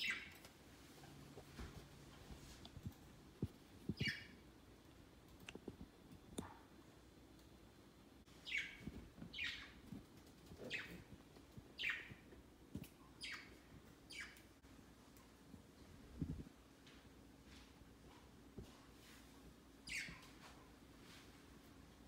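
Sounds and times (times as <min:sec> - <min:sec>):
budgerigars chirping: 0:00.0 - 0:00.4, 0:04.0 - 0:04.3, 0:08.4 - 0:09.8, 0:11.8 - 0:12.2, 0:19.9 - 0:20.2.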